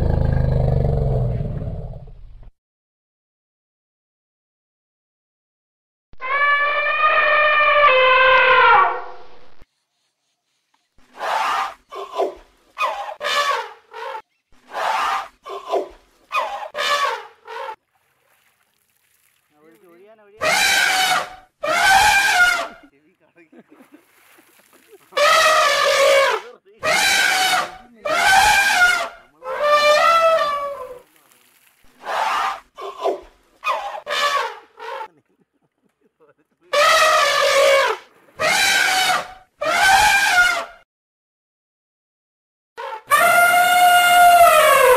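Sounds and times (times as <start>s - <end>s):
elephant calling: 6.2s - 8.9s, 20.4s - 22.9s, 24.8s - 31.0s, 31.9s - 35.2s, 36.7s - 40.8s, 42.8s - 44.9s.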